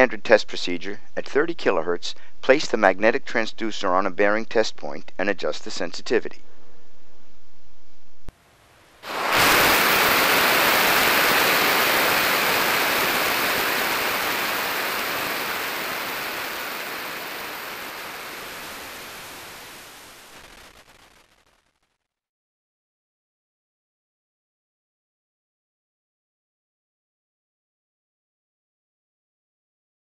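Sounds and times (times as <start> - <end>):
ultrasonic bearing hiss: 9.0 - 20.0.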